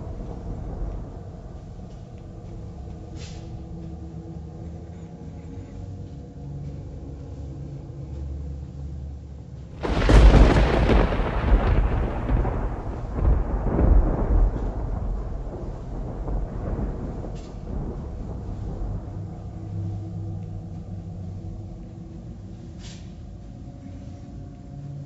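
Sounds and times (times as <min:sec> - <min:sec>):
low steady rumble: 0:00.0 - 0:25.0
loud rolling crash: 0:09.8 - 0:19.0.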